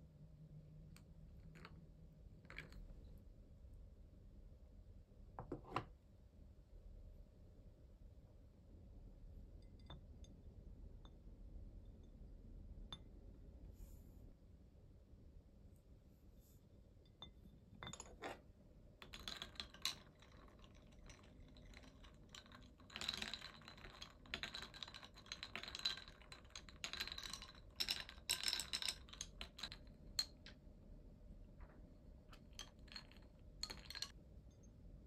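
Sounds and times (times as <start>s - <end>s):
ice cubes clinking in glass: 19.0s - 30.5s, 32.3s - 34.1s.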